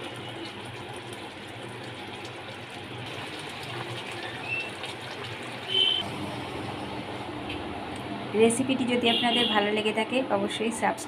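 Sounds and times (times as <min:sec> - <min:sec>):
curry bubbling at a boil: 0:00.0 - 0:06.1.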